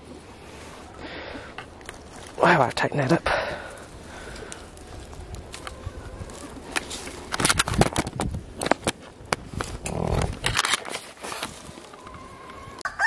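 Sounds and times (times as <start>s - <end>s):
fence netting crackling and clicking: 1.0s - 12.8s.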